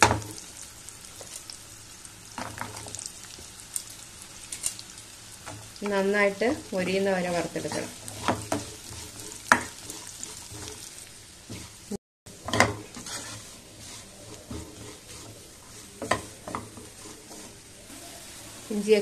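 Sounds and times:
ginger sizzling in oil: 0:00.0 - 0:19.0
spatula scraping and knocking pan: 0:05.4 - 0:17.8.

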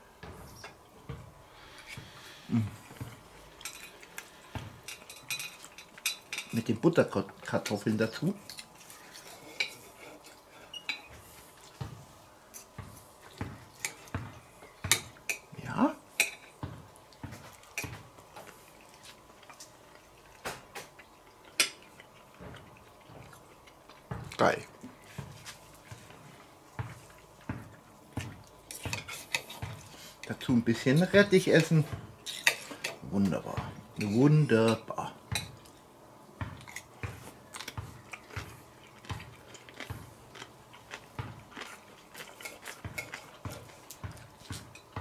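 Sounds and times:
mouth sounds while eating: 0:01.6 - 0:03.2
fork scraping on plate: 0:09.1 - 0:11.2
cutlery clicking on a plate: 0:31.6 - 0:33.0.

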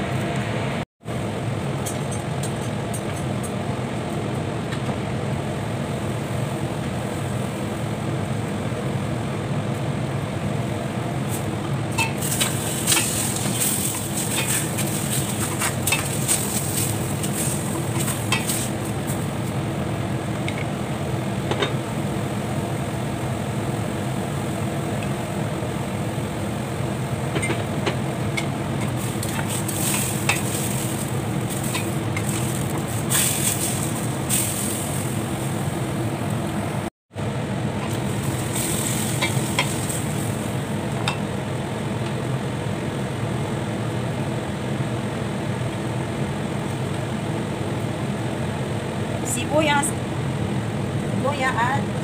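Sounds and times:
steady low hum: 0:00.0 - 0:52.0
meat sizzling in a pan: 0:12.1 - 0:19.2, 0:28.9 - 0:35.5, 0:38.0 - 0:40.7.

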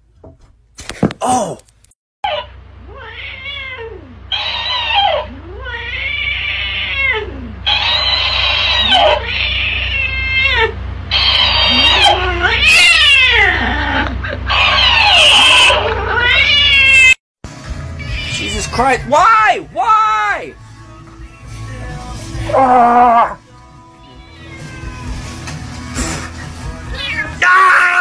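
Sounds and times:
cat yowling: 0:02.2 - 0:17.2, 0:18.0 - 0:18.8, 0:22.5 - 0:23.4, 0:24.0 - 0:25.1, 0:26.8 - 0:28.0.

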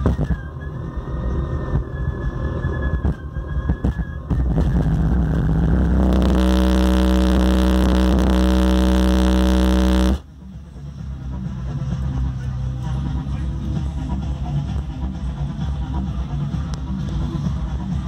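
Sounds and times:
deep subwoofer bass tone: 0:03.8 - 0:10.2.

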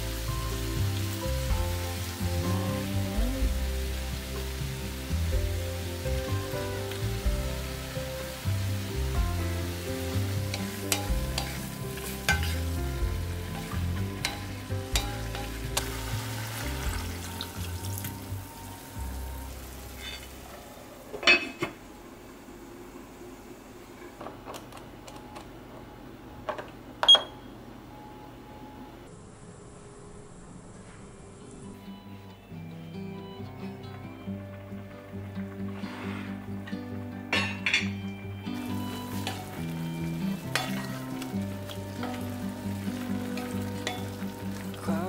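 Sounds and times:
background music: 0:00.0 - 0:20.4, 0:31.7 - 0:45.0
food sizzling in a pot: 0:00.0 - 0:21.9, 0:34.4 - 0:45.0.

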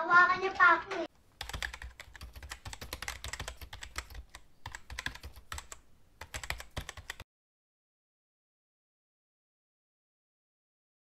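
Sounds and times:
computer keyboard typing: 0:01.4 - 0:07.2.

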